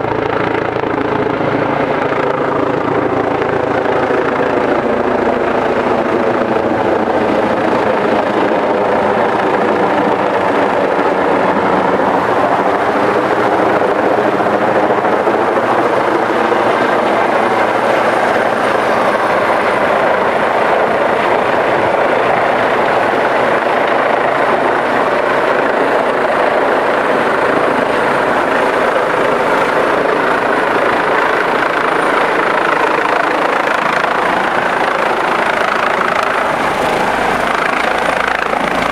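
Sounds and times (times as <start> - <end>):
helicopter rotor beating: 0.0 - 38.9.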